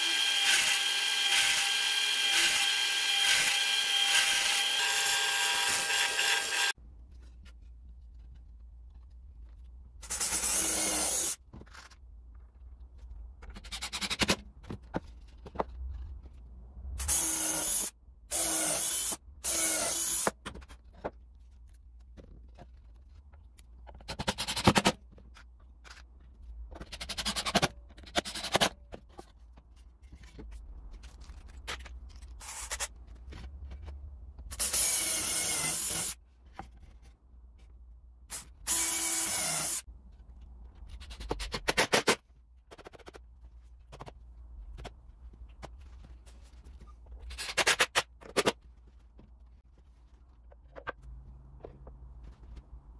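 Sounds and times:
cordless drill boring into wood: 0.0 - 6.7.

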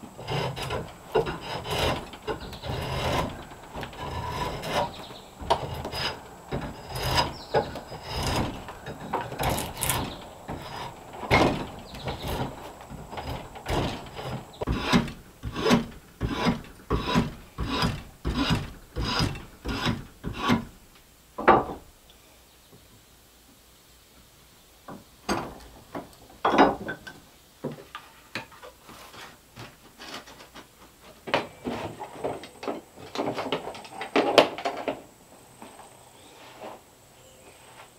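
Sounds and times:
hand tool scraping wood: 0.0 - 20.8, 28.0 - 34.4.

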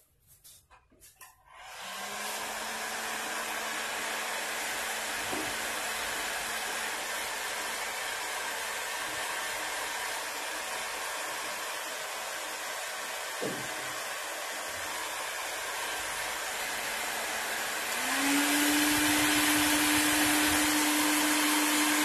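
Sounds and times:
heat gun blowing hot air: 1.5 - 22.0.

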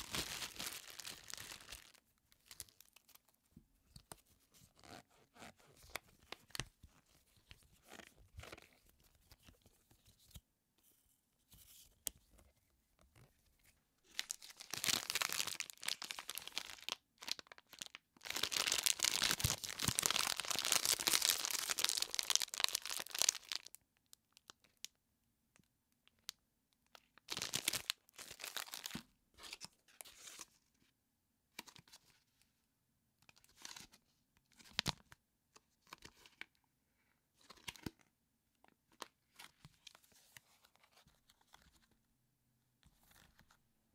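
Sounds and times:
plastic wrapper crinkling and tearing: 0.0 - 3.2, 14.1 - 23.8, 27.2 - 29.6.

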